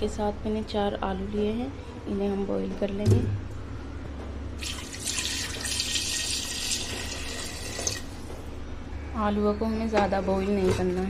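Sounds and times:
tap water pouring into pot: 0:04.6 - 0:08.2.

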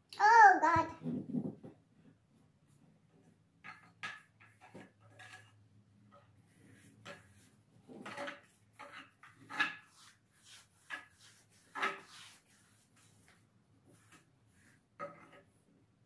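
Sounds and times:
hands rubbing wood: 0:08.9 - 0:14.8.

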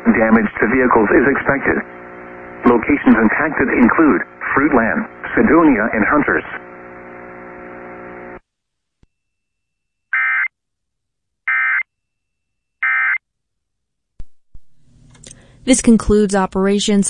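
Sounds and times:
steady buzz: 0:00.0 - 0:08.4.

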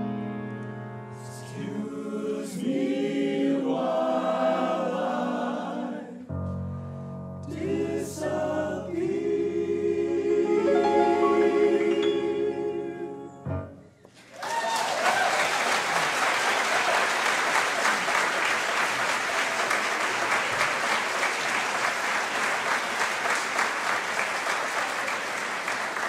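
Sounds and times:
men's choir singing chord: 0:01.3 - 0:06.3, 0:07.5 - 0:13.5
audience applause: 0:14.2 - 0:26.0
audience whooping: 0:14.2 - 0:26.0.

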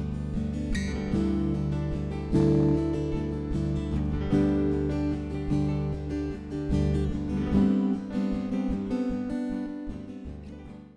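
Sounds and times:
strummed acoustic guitar music: 0:00.0 - 0:10.9.

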